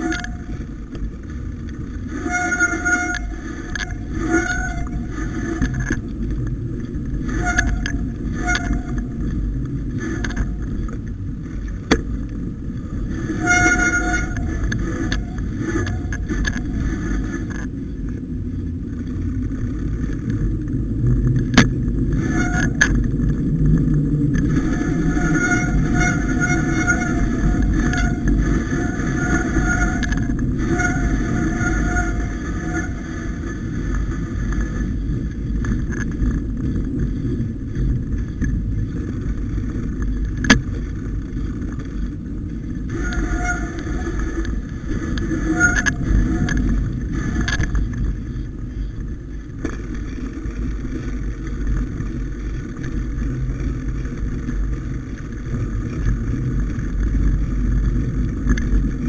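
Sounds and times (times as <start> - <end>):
bike tyres rumbling on dirt: 0.0 - 59.0.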